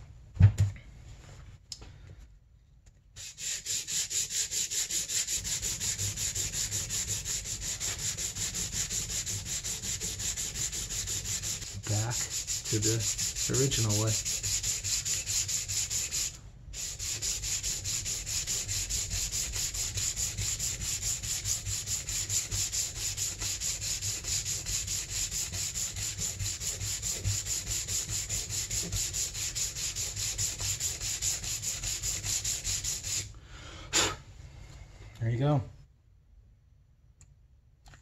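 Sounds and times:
sandpaper rubbing on metal: 0:03.2 - 0:33.3.

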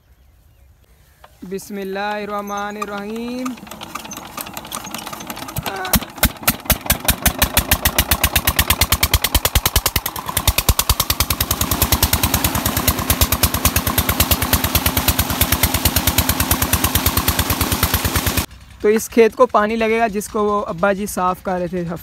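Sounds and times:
diesel engine running: 0:01.2 - 0:22.0
water gushing from pipe: 0:05.2 - 0:18.5.

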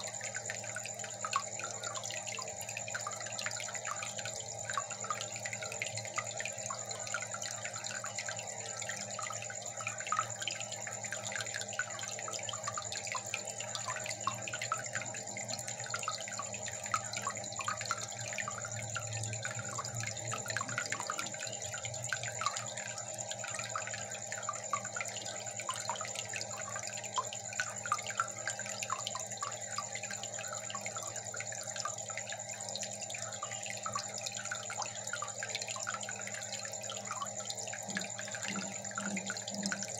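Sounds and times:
aquarium water bubbling: 0:00.0 - 0:39.9
faint low hum: 0:30.4 - 0:39.9.

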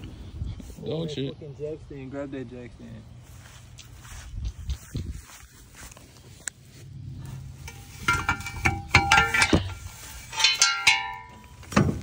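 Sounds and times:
metal clinks and clanks: 0:07.4 - 0:12.0.

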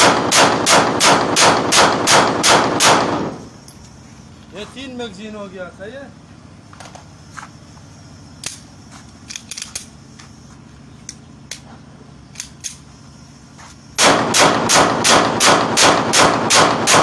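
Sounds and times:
pistol rapid gunshots: 0:00.0 - 0:03.4, 0:14.0 - 0:17.0
pistol metallic clicks: 0:08.4 - 0:10.0, 0:11.0 - 0:11.7, 0:12.3 - 0:12.9.

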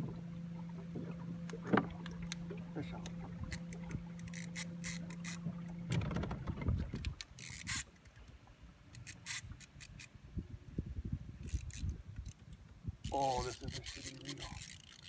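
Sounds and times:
boat motor hum: 0:00.0 - 0:09.0
fishing reel scraping and clicking: 0:03.4 - 0:05.5, 0:07.0 - 0:08.2, 0:08.9 - 0:10.2, 0:11.4 - 0:15.0.

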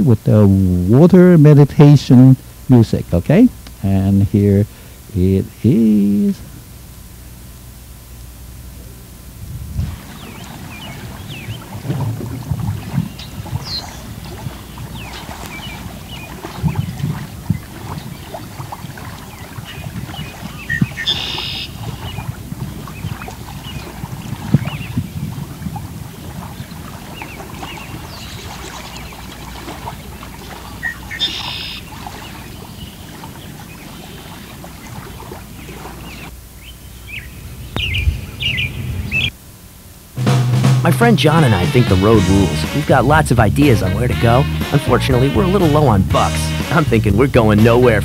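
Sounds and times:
flowing lapping water: 0:08.8 - 0:39.4, 0:41.0 - 0:48.0
birds chirping: 0:09.9 - 0:39.4, 0:41.0 - 0:48.0.

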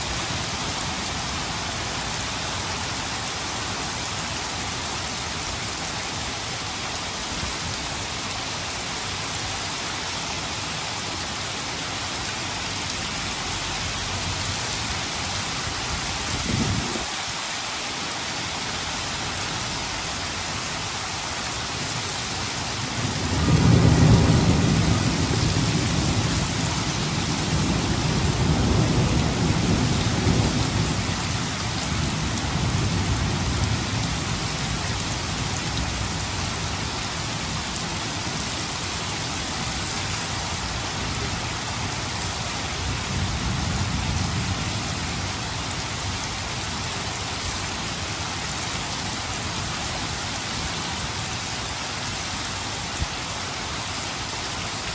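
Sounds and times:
rain hissing: 0:00.0 - 0:54.9
thunder rumbling: 0:23.0 - 0:34.4.

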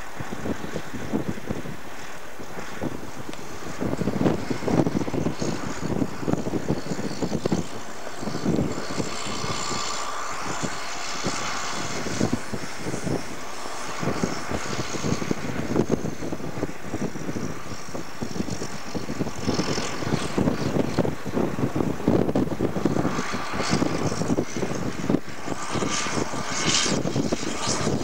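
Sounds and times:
tractor diesel engine under load: 0:00.0 - 0:28.0.

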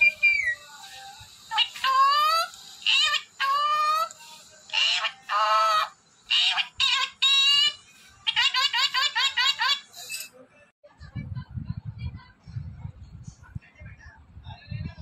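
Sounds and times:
parrot calling: 0:01.4 - 0:10.3.

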